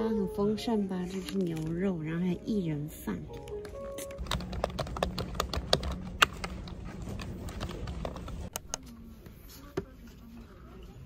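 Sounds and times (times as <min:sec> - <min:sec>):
keyboard typing: 0:03.4 - 0:08.8.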